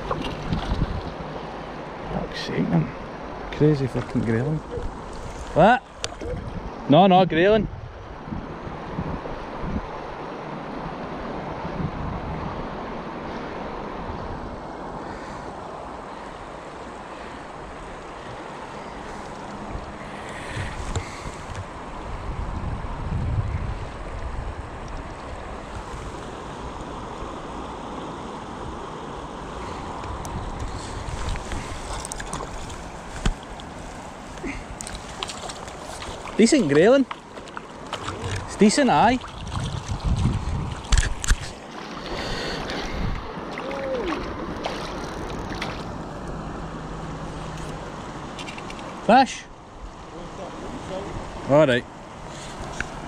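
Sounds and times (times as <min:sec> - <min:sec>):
wind buffeting microphone: 0:00.0 - 0:01.4, 0:03.7 - 0:06.9, 0:07.5 - 0:10.2, 0:17.6 - 0:26.8, 0:29.6 - 0:46.1
river water rushing: 0:00.0 - 0:23.0, 0:23.7 - 0:53.0.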